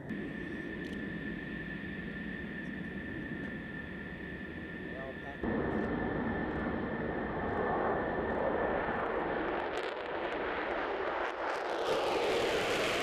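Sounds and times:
jet taking off on afterburner: 0:00.0 - 0:13.0.

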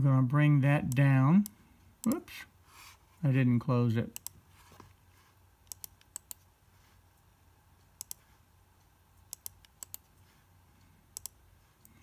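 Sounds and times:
low room hum: 0:00.0 - 0:12.0
mouse buttons clicking: 0:05.7 - 0:06.4, 0:08.0 - 0:08.3, 0:09.3 - 0:10.2, 0:11.1 - 0:11.4.

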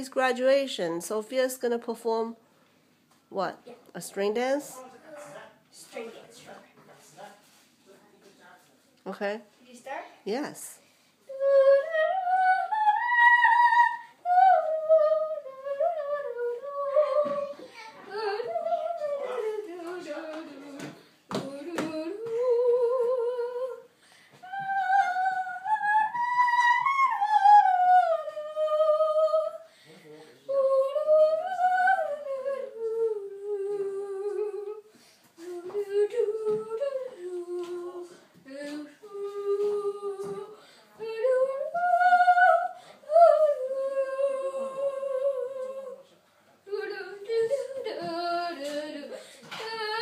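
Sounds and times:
girl singing wordless tune: 0:10.8 - 0:50.0.

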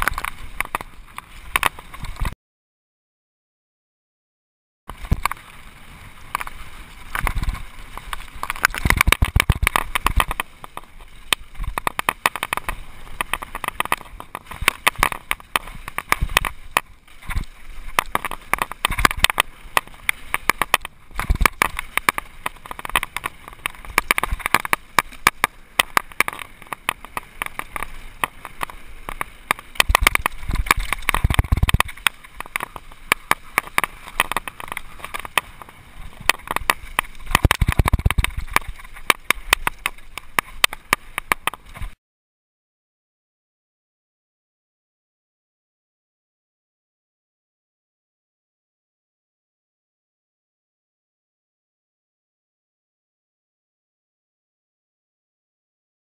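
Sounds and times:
mountain bike rattling on trail: 0:00.0 - 0:02.4, 0:04.9 - 0:42.0.

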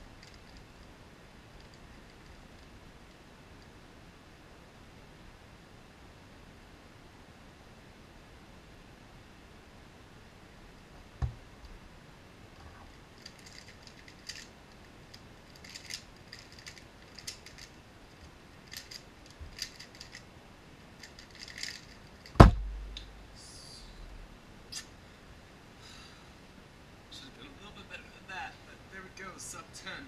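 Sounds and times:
plastic puzzle clacking: 0:13.2 - 0:17.8, 0:18.6 - 0:20.2, 0:21.0 - 0:22.4
hands thudding on keyboard: 0:22.4 - 0:22.7.

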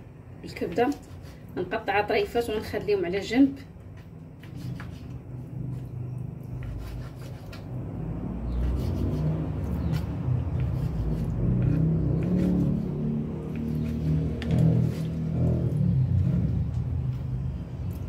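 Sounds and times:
low rumble: 0:07.8 - 0:18.0.

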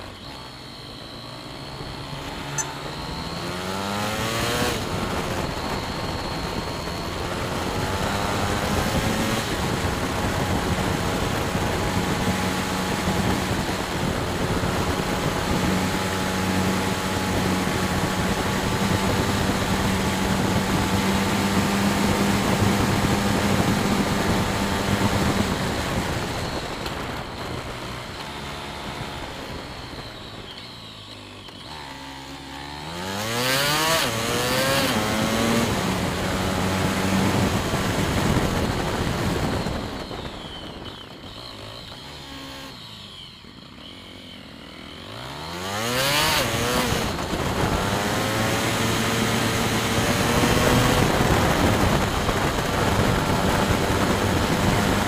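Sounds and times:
motorcycle engine revving: 0:00.0 - 0:55.0
wind and road noise: 0:00.0 - 0:55.0.

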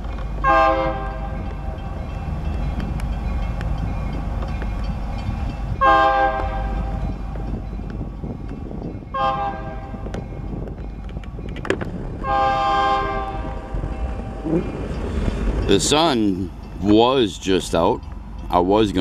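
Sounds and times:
locomotive low rumble: 0:00.0 - 0:19.0
locomotive air horn: 0:00.4 - 0:01.4, 0:05.8 - 0:06.9, 0:09.1 - 0:10.1, 0:12.2 - 0:13.7.

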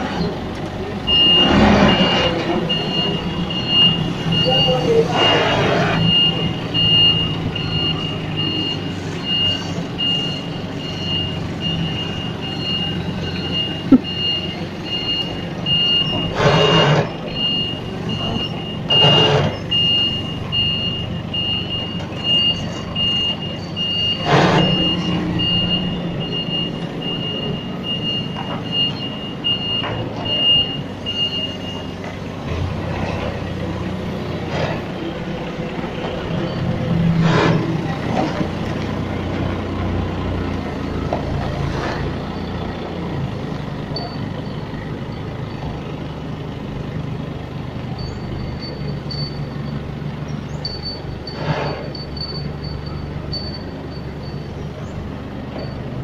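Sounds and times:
forklift engine running: 0:00.0 - 0:56.0
forklift backup alarm beeping: 0:00.2 - 0:45.4, 0:47.4 - 0:56.0.

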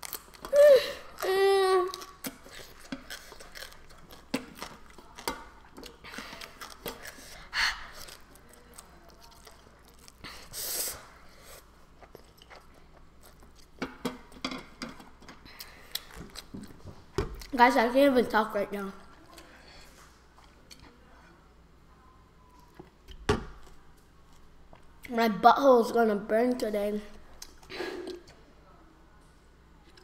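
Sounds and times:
quiet chewing: 0:00.0 - 0:10.6, 0:11.2 - 0:17.6, 0:18.9 - 0:21.4, 0:22.4 - 0:25.1, 0:27.1 - 0:28.4, 0:29.8 - 0:30.0.

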